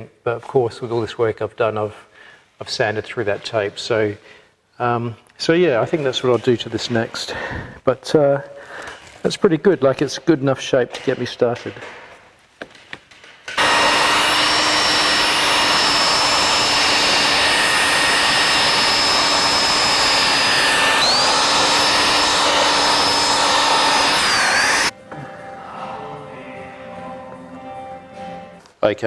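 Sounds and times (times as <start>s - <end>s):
belt sander grinding: 13.6s - 24.9s.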